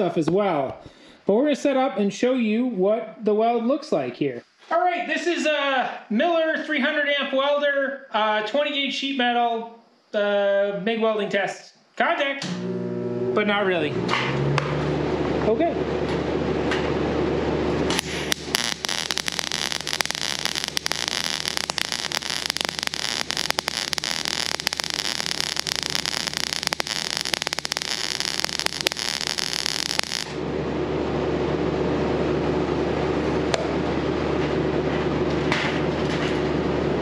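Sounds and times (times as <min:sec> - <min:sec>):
steady hum: 0:15.2 - 0:35.0
welding arc crackling: 0:17.7 - 0:30.4.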